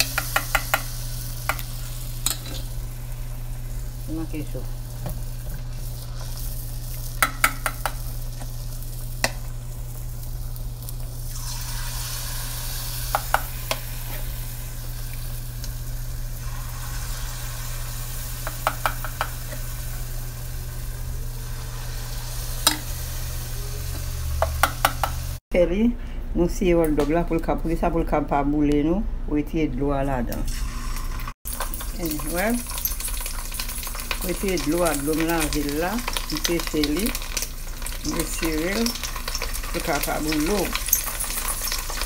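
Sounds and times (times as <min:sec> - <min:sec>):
batter sizzling in hot oil: 0:00.0 - 0:25.4, 0:30.5 - 0:42.0.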